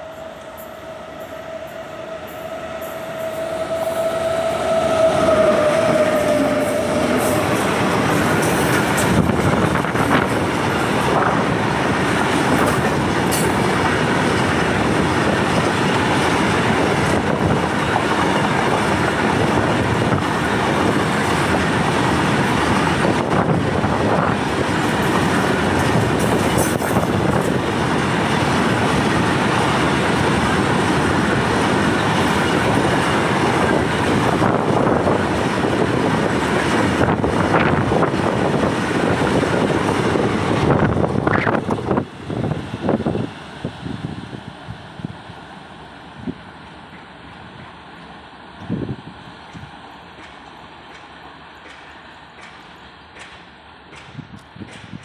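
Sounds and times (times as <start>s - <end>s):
locomotive horn: 0.0s - 8.7s
train rumble: 0.0s - 55.0s
train wheel clatter: 4.7s - 43.3s, 46.6s - 55.0s.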